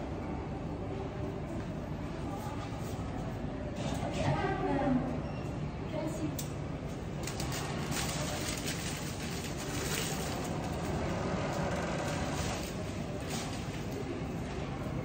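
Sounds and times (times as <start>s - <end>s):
stems clicking and rustling: 7.2s - 14.1s.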